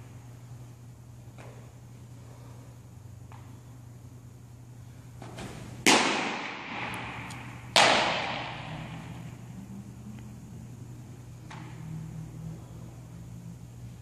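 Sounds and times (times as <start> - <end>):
baseball smacking into leather glove: 5.2 - 8.9.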